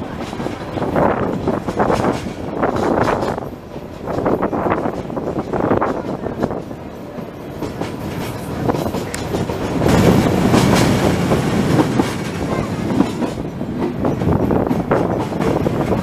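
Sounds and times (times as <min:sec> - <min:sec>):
train rumbling on track: 0:00.0 - 0:16.0
wheels clicking over rail joints: 0:00.0 - 0:16.0.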